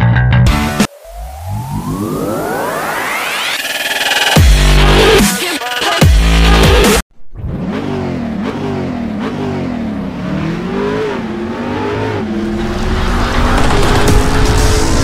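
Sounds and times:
loud electronic dance music: 0.5 - 7.0
car engine revving: 6.2 - 15.0.

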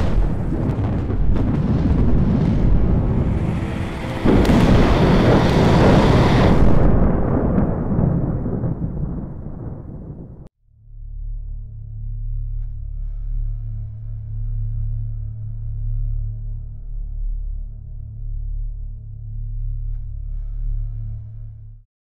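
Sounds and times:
thunder rumbling: 0.0 - 10.5
thunderclap: 0.0 - 10.5.

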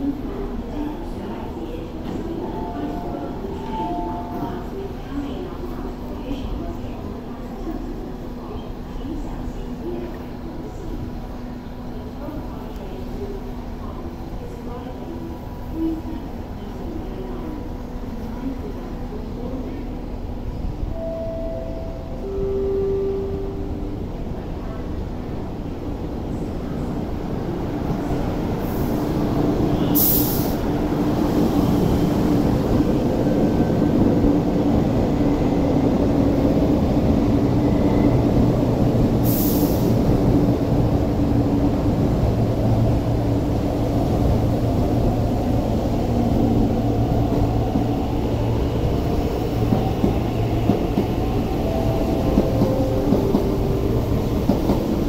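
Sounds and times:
electric train rumbling: 0.0 - 55.0.

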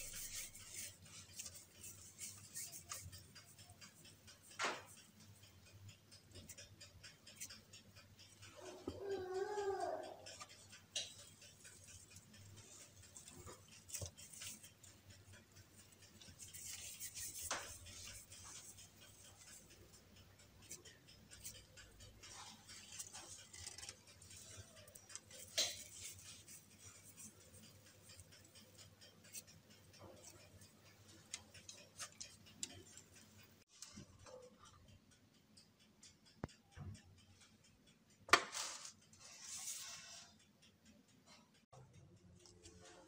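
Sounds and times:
hands handling cookie dough: 0.0 - 3.2, 10.4 - 15.0, 15.6 - 19.7
faint clicks and ticks: 0.0 - 43.0.

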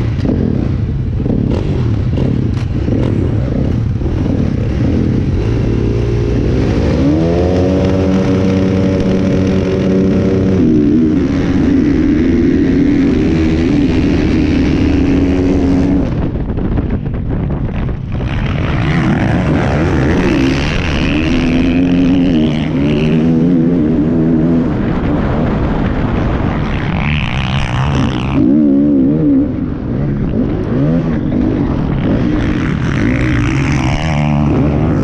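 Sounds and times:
motocross bike engine revving: 0.0 - 16.6, 17.6 - 35.0
other dirt bike engines: 0.0 - 35.0.

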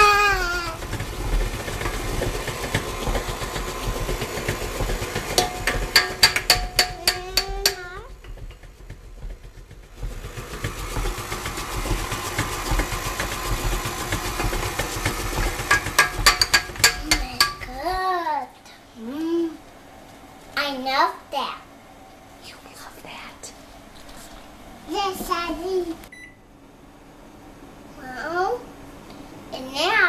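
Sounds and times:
steady low hum: 0.0 - 30.0
plastic cup knocking on bowls: 13.6 - 17.7.

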